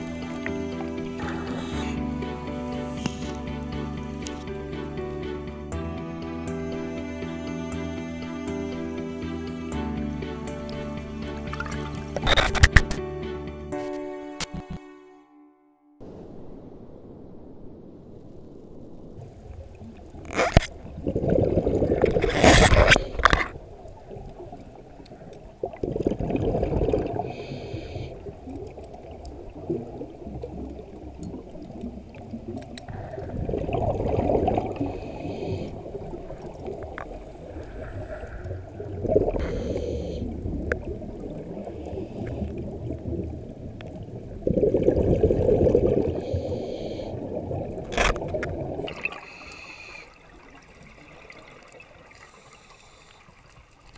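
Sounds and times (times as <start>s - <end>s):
underwater regulator bubbles: 0.0s - 4.8s, 19.3s - 53.2s
murky water noise: 0.0s - 13.4s, 16.0s - 53.9s.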